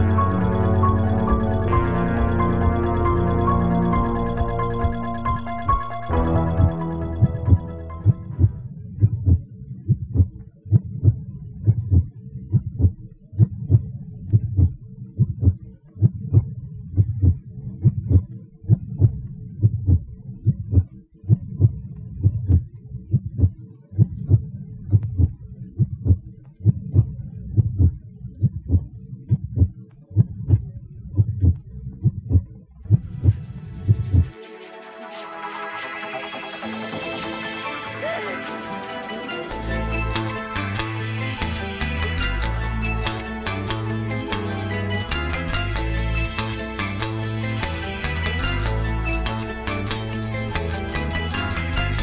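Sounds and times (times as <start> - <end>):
faint held drone: 0.0 - 8.8
heartbeat double thumps: 0.0 - 34.4.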